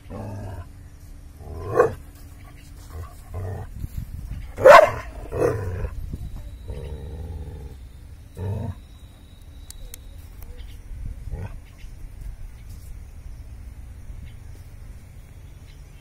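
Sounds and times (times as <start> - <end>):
dog growling: 0.0 - 0.7, 1.4 - 2.0, 2.9 - 3.7, 4.6 - 6.0, 6.6 - 7.8, 8.4 - 8.8, 11.2 - 11.6
dog barking: 4.6 - 5.8.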